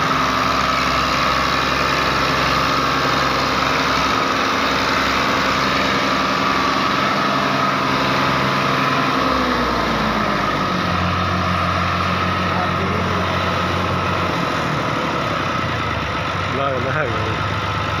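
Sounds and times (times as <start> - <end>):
tractor diesel engine under load: 0.0 - 18.0.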